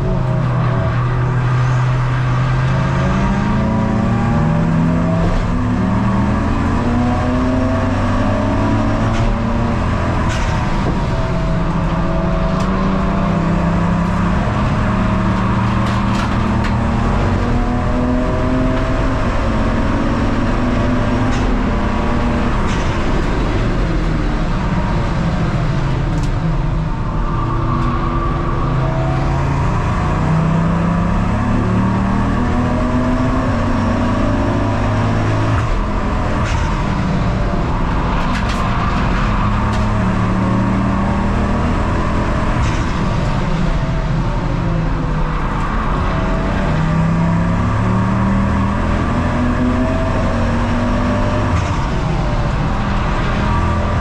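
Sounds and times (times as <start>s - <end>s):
race car engine revving: 0.0s - 54.0s.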